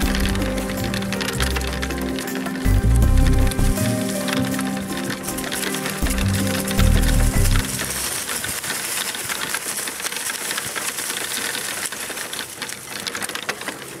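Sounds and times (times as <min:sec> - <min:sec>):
background music: 0:00.0 - 0:08.2
cart rattling on dirt trail: 0:00.0 - 0:14.0.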